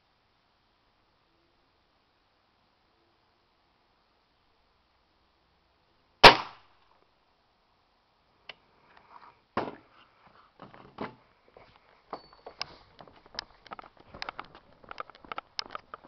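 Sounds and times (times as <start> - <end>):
air rifle shot crack: 6.2 - 6.7
footsteps on wooden deck: 9.6 - 16.0.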